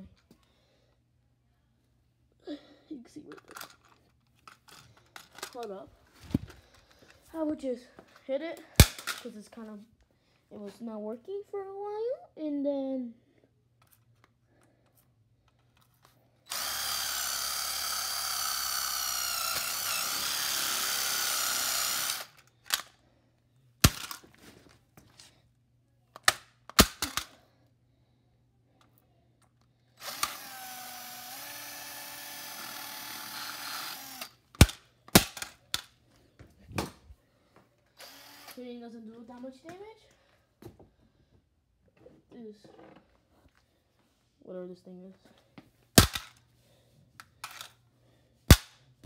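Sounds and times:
cordless drill whining: 16.5 - 22.8, 30.0 - 34.5, 38.0 - 38.6.

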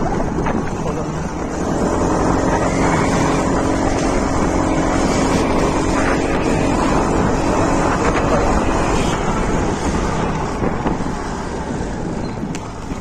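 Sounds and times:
road noise: 0.0 - 13.0
scooter engine running: 0.0 - 13.0
wind buffeting microphone: 0.0 - 13.0.

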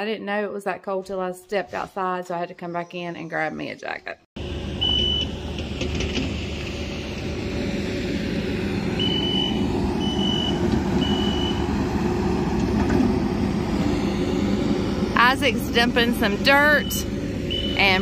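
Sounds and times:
heavy machinery engine running: 4.4 - 18.0
back-up alarm beeping: 4.8 - 5.4, 9.0 - 11.8, 15.4 - 18.0.

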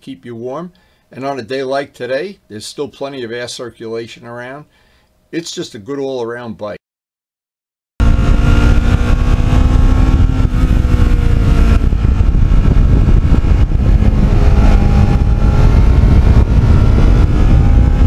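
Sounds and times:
motorcycle engine running: 8.0 - 18.0
wind rush on microphone: 8.0 - 18.0.

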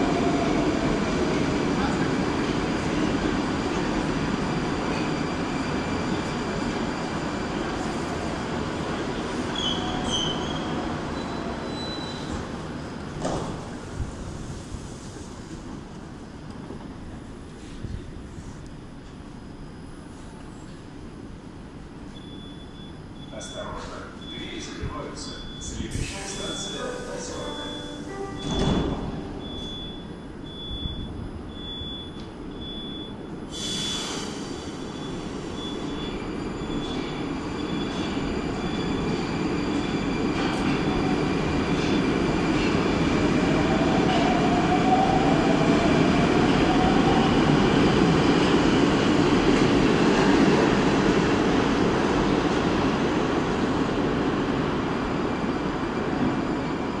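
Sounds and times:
train pulling out: 23.3 - 57.0.

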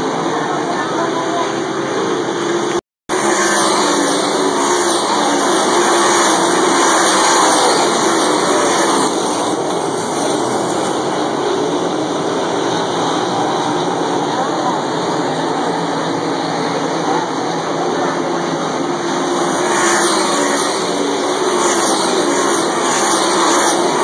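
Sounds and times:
race car engines roaring past: 0.0 - 24.0.

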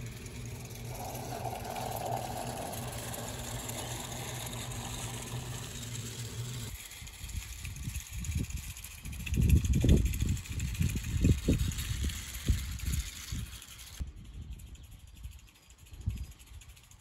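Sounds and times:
train rumbling over bridge: 0.0 - 6.7
wheels rattling: 0.0 - 14.0.

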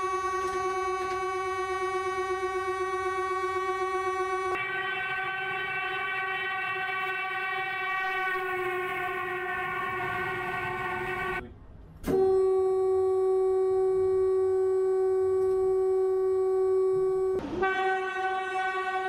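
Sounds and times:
train horn blast: 0.0 - 11.5, 12.1 - 19.0
click: 0.4 - 1.2, 15.4 - 15.6.

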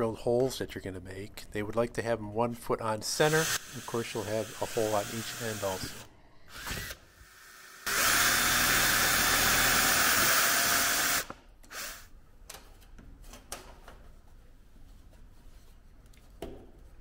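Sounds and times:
cordless drill drilling: 3.3 - 12.1.

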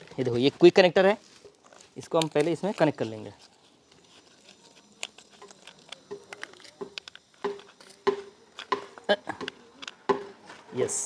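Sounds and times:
plastic squeaks: 1.6 - 10.0
hard plastic clicking: 3.9 - 10.3.

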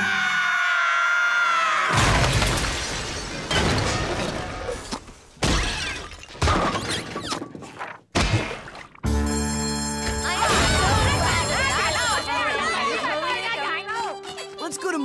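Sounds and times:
cartoon crash with shattering: 1.9 - 4.8, 10.4 - 12.2.

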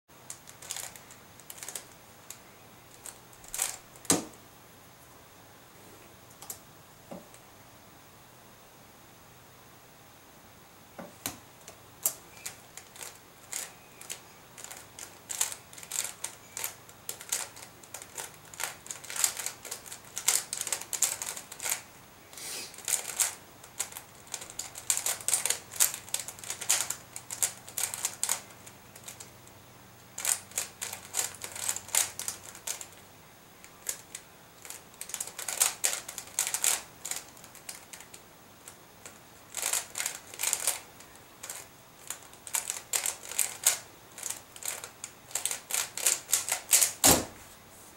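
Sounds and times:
plastic puzzle clicking: 0.3 - 4.3, 11.2 - 21.8, 22.7 - 29.3, 30.2 - 33.0, 33.6 - 47.0.

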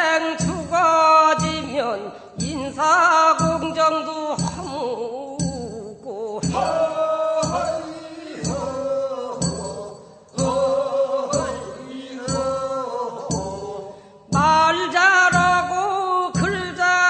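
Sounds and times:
voices singing long notes: 6.3 - 16.5
sharp struck beat: 6.4 - 14.7.

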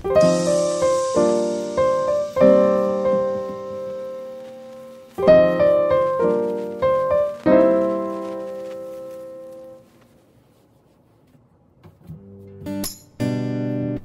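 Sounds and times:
piano chords: 0.0 - 9.8.

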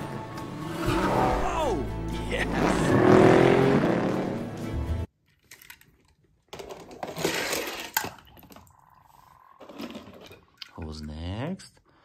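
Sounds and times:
film soundtrack music: 0.0 - 5.1
toy cars clinking on plastic track: 6.5 - 8.1.

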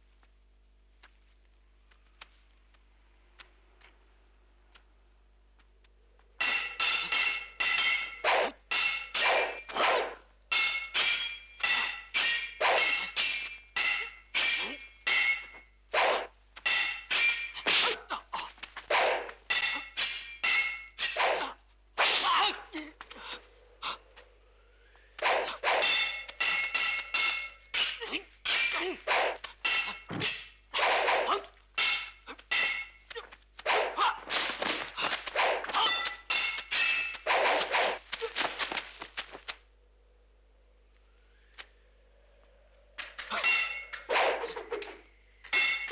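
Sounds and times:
swords clashing: 6.4 - 23.4, 25.1 - 38.9, 43.0 - 45.9.

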